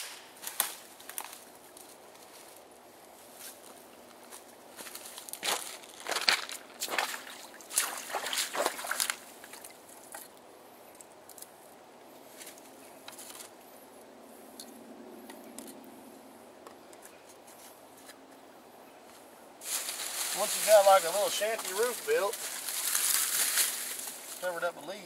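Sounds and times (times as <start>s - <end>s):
sticks and leaves rustling: 0.0s - 13.7s, 16.8s - 25.0s
creek water trickling: 5.2s - 11.5s, 19.6s - 24.5s
boots splashing through creek: 5.4s - 10.3s, 19.6s - 24.4s.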